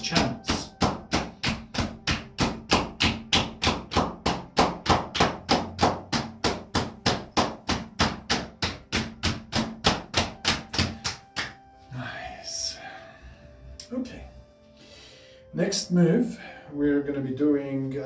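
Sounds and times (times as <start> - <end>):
cupped hands patting legs: 0.0 - 11.7.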